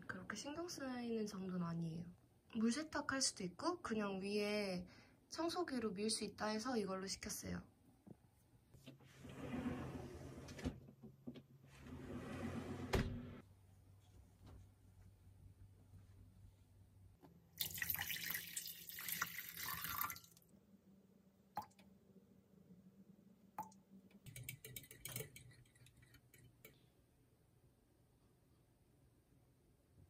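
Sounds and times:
water pouring into a metal saucepan: 17.6s - 20.4s
kitchen clatter: 24.2s - 26.8s
spoon clinking against pot: 24.3s - 26.8s.

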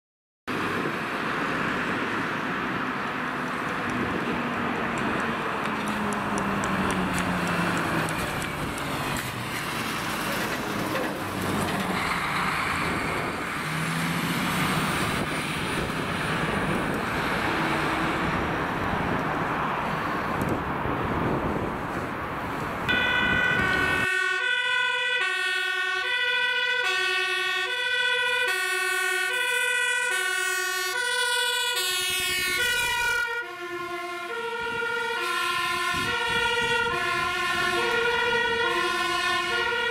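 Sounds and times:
fire engine passing at speed: 0.5s - 39.9s
two-tone siren: 22.9s - 39.9s.

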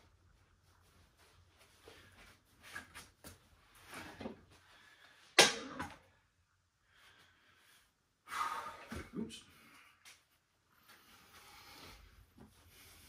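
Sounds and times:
person shuffling on carpet: 0.0s - 4.9s.

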